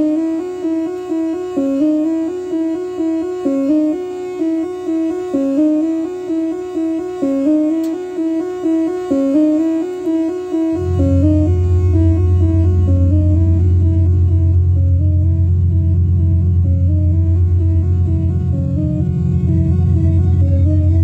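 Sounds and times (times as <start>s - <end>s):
synthesizer arpeggio: 0.0s - 21.0s.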